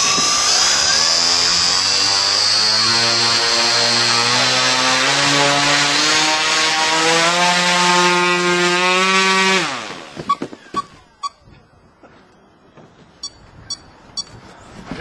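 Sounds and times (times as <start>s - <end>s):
propeller drone with electric whine: 0.0s - 10.4s.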